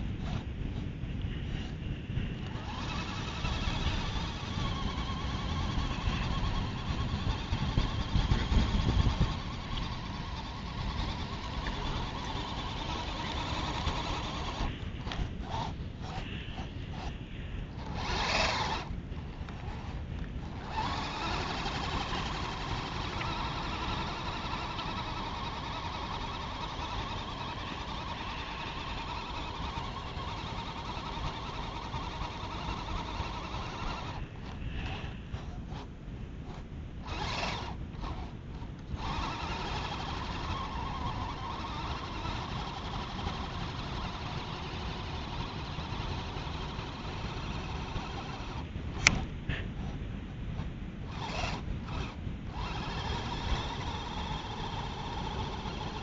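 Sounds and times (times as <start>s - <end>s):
electric motor and gearbox whining: 0.0s - 56.0s.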